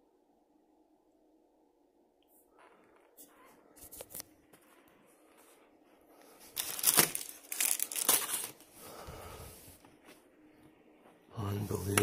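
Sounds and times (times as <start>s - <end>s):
crinkling rustling noise: 2.4s - 12.0s.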